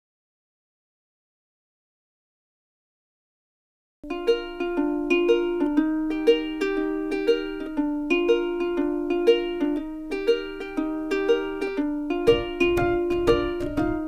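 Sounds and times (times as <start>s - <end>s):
plucked string music: 4.0s - 14.0s.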